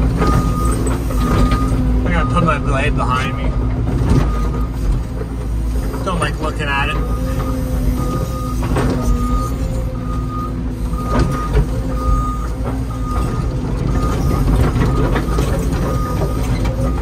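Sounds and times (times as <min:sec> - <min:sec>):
diesel engine running: 0:00.0 - 0:17.0
backup alarm beeping: 0:00.2 - 0:03.6, 0:07.0 - 0:17.0.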